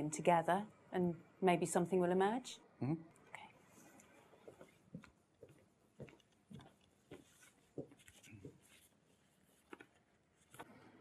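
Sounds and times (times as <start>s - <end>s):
faint footsteps walking away: 3.8s - 10.6s.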